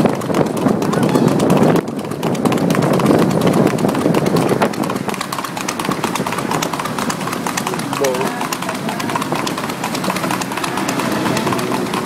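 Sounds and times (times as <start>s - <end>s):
horse hooves clip-clopping on pavement: 0.0s - 12.0s
steady rushing noise: 0.0s - 12.0s.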